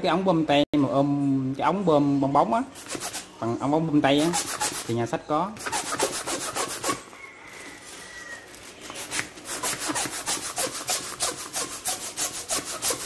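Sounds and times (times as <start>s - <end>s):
balloon pump strokes: 2.8s - 3.3s, 4.2s - 4.9s, 5.6s - 7.1s, 8.9s - 13.0s.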